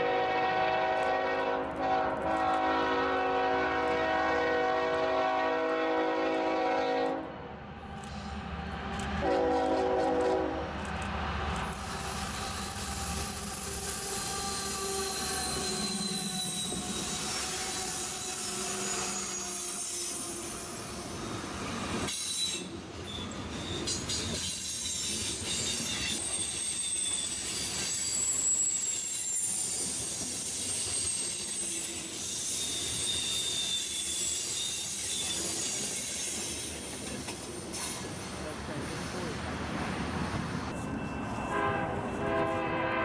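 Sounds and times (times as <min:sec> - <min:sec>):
train wheels rumbling on rails: 0:00.0 - 0:43.0
wheel squeal: 0:11.9 - 0:20.9, 0:22.1 - 0:38.0.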